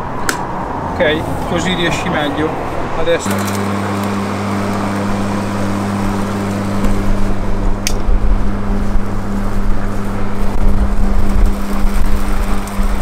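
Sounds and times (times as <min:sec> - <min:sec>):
low rumble: 0:00.5 - 0:13.0
lawn mower humming: 0:01.0 - 0:13.0
sharp click: 0:07.8 - 0:08.1.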